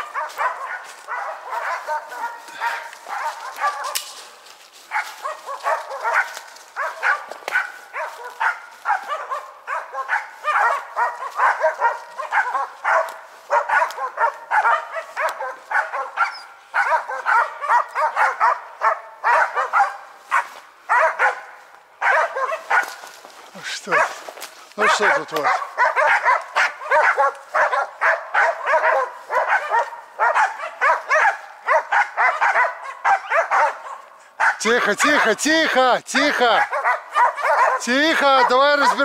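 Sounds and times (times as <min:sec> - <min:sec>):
dogs barking: 0:00.0 - 0:39.0.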